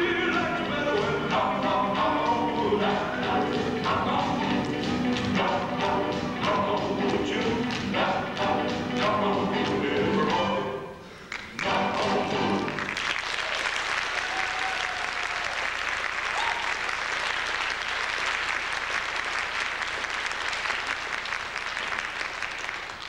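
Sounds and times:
dance music: 0.0s - 10.7s, 11.6s - 12.9s
audience applauding: 11.3s - 23.0s.

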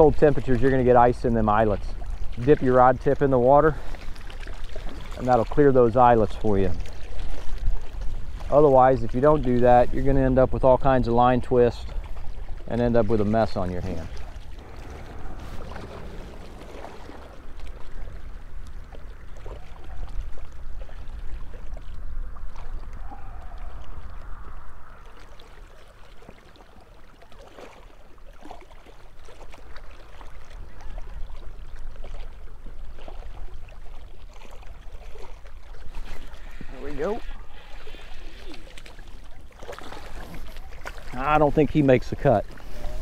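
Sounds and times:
wind buffeting microphone: 0.0s - 26.4s
water lapping against a boat: 0.0s - 43.0s.

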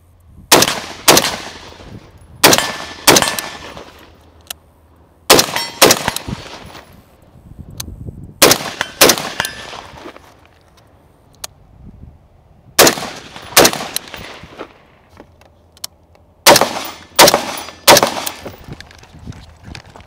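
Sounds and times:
rifle shots with echo: 0.5s - 4.0s, 5.3s - 6.8s, 8.4s - 10.0s, 12.8s - 14.6s, 16.4s - 18.6s.

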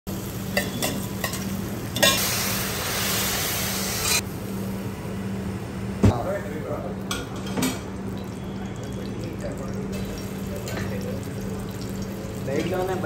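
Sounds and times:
egg sizzling on griddle: 0.1s - 5.5s.

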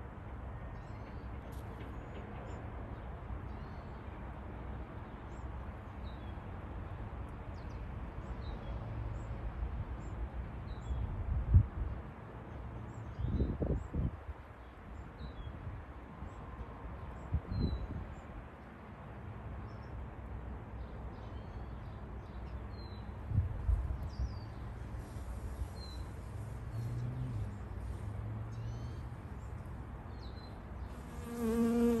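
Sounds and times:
honeybee buzzing: 30.9s - 32.0s.

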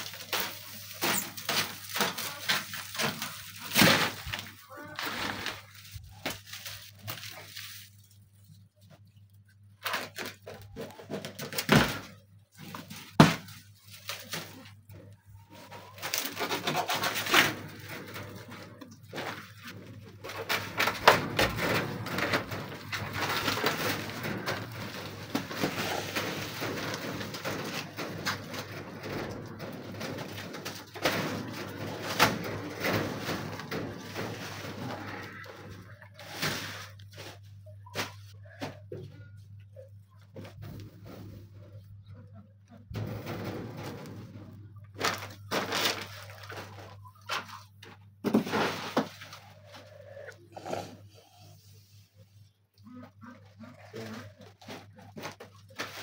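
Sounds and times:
plastic film crinkling and tearing: 0.0s - 15.0s, 44.9s - 50.0s.

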